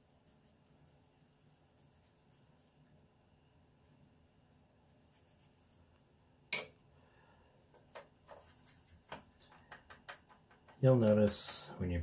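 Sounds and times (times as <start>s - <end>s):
brush scrubbing in palette: 0.0s - 2.9s, 4.8s - 6.0s, 8.2s - 9.7s
brush strokes on paper: 0.0s - 3.0s, 4.8s - 6.0s, 8.2s - 9.6s.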